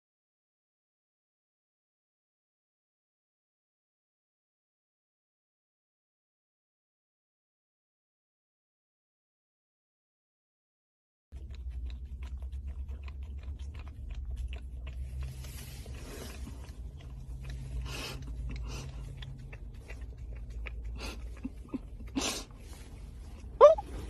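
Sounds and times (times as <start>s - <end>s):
puppy licking and lapping: 11.4s - 24.0s.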